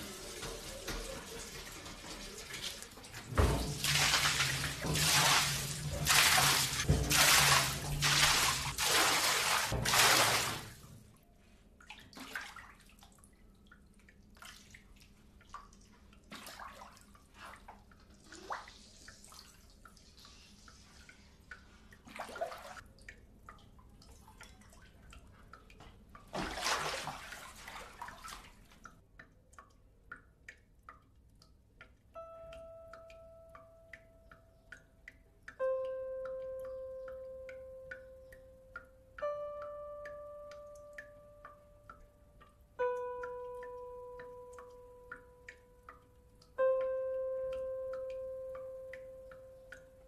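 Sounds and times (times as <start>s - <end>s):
water drips and small splashes: 0.0s - 50.0s
rush of water: 3.4s - 10.8s.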